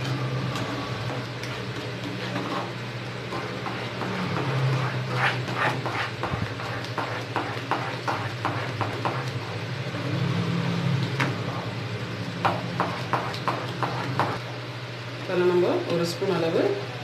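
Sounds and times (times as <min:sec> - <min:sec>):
wooden spatula scraping pan: 0:00.0 - 0:09.5
steady low hum: 0:00.0 - 0:17.0.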